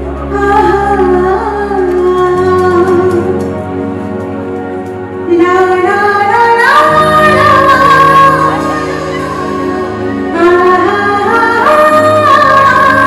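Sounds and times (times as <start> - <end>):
live band music: 0.0 - 13.0
high sliding melody line: 2.8 - 13.0.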